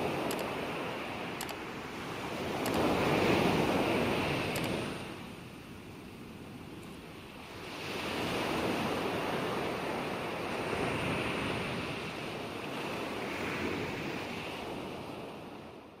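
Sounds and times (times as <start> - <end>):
waves breaking on shore: 0.0 - 16.0.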